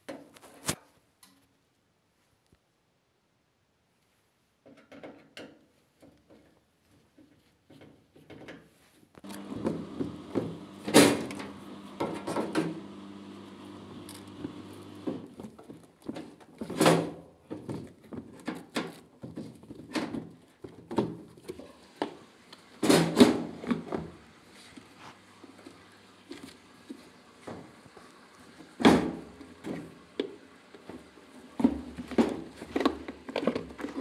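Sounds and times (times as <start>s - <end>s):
plastic and metal panels clattering: 9.3s - 12.8s, 14.2s - 21.7s.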